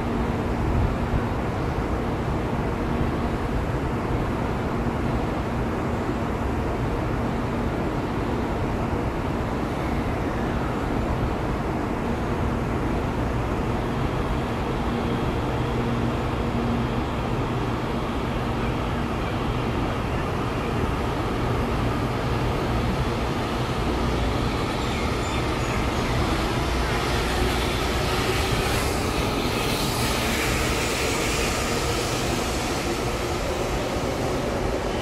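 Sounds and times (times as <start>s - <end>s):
train rumble and rush: 0.0s - 35.0s
faint whine rising in pitch: 23.6s - 35.0s.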